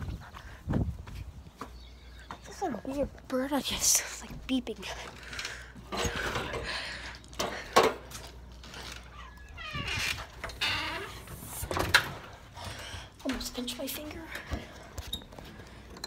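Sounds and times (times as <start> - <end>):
door squeak: 9.0 - 12.1.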